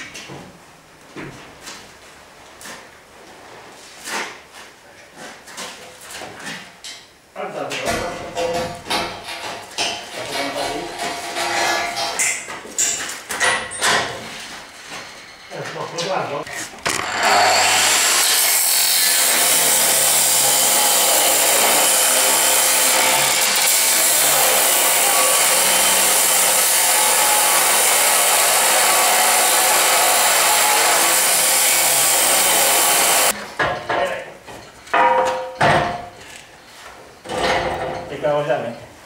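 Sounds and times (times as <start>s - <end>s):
knocks and clatters: 7.8s - 17.3s
angle grinder cutting steel: 16.8s - 33.4s.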